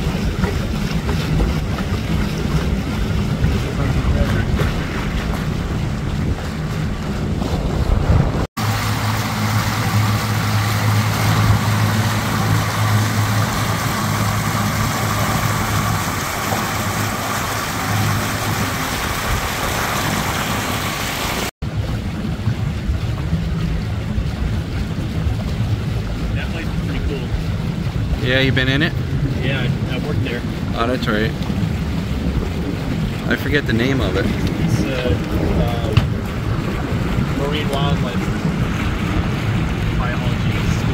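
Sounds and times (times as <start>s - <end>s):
outboard motor humming: 0.0s - 40.9s
water rushing past boat: 0.0s - 40.9s
wind on microphone: 0.0s - 40.9s.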